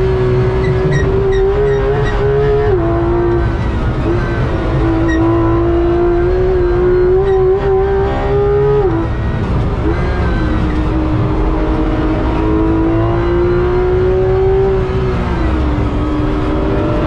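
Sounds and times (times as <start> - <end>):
car engine accelerating: 0.0 - 17.0.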